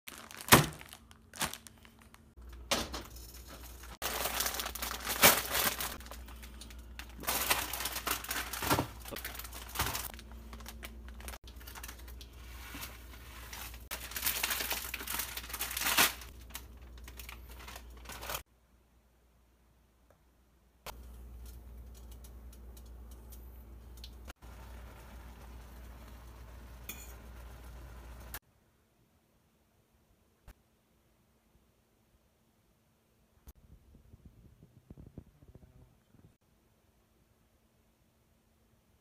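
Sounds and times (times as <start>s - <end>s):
plastic packet crinkling: 0.1s - 2.6s, 3.6s - 18.4s.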